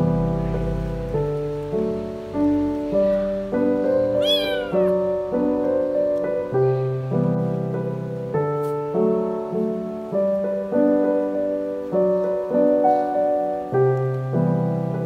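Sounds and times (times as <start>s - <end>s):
gentle piano music: 0.0s - 15.0s
kitten meowing: 4.2s - 5.1s.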